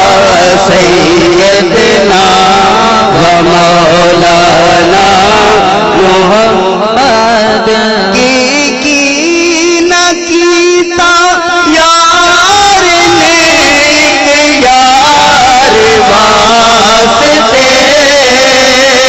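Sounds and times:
man singing into a microphone: 0.0s - 19.0s.

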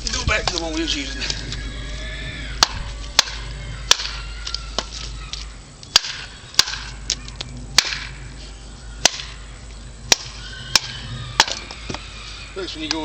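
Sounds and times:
machete chopping wood: 2.6s - 4.2s, 5.9s - 7.0s, 7.8s - 8.2s, 9.0s - 9.4s, 10.1s - 11.6s.

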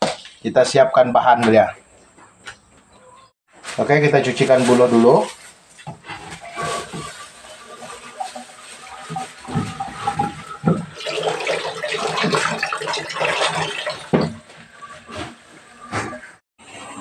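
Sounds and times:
tap water splashing: 9.1s - 14.4s.

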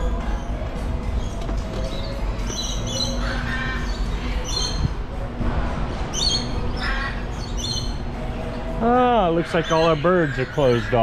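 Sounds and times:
steady low rumble: 0.0s - 9.4s
lorikeets squawking: 1.2s - 5.0s, 6.1s - 11.0s.

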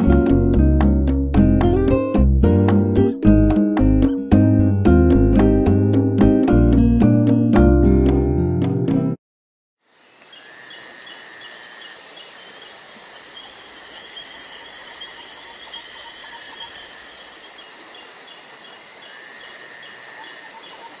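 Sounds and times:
constant hiss: 9.8s - 21.0s
insects chirping: 9.8s - 21.0s.

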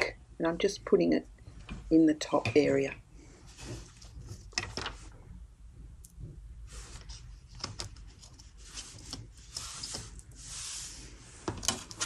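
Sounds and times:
scrapes and rustles: 3.3s - 5.2s, 6.2s - 12.0s.

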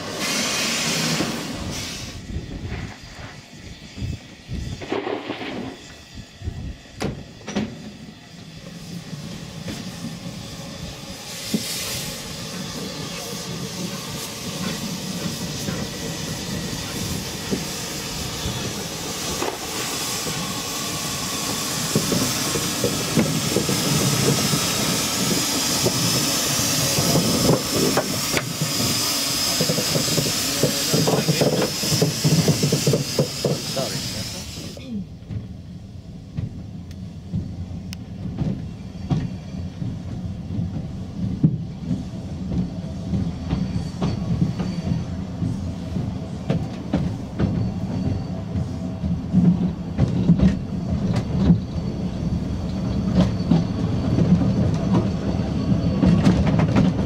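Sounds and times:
steam hissing: 0.0s - 35.0s.

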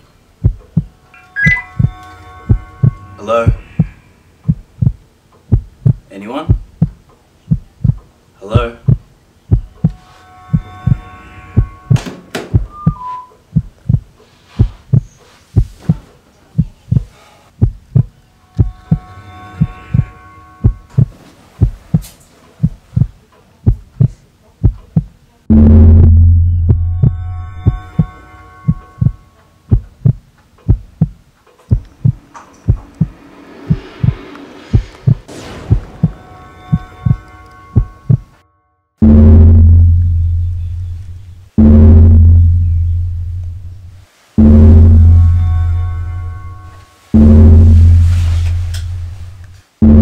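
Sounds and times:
faint steady drone: 0.0s - 14.1s, 17.5s - 22.6s, 25.3s - 50.0s
heartbeat thumps: 0.4s - 11.0s, 11.6s - 38.4s, 39.0s - 46.5s, 47.2s - 48.0s, 49.0s - 50.0s
falling electronic beeps: 1.2s - 4.0s, 9.6s - 13.4s
held drone: 31.7s - 38.4s.

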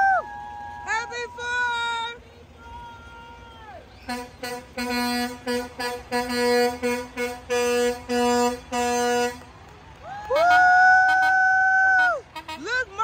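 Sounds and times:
higher-pitched air horn long blast: 4.0s - 9.4s
low air horn short blasts: 4.0s - 9.4s.

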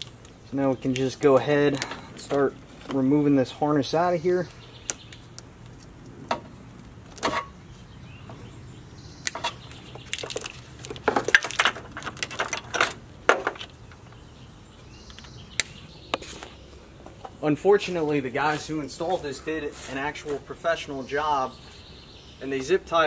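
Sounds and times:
wiring harness rustling and scraping: 0.0s - 3.4s.

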